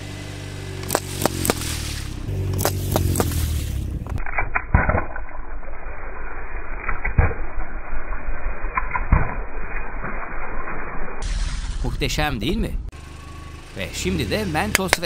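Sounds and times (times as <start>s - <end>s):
object crackling under car tyre: 0.7s - 12.1s.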